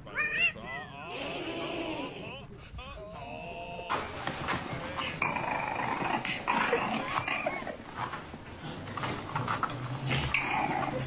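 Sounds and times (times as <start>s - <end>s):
puppy growling: 5.2s - 11.0s.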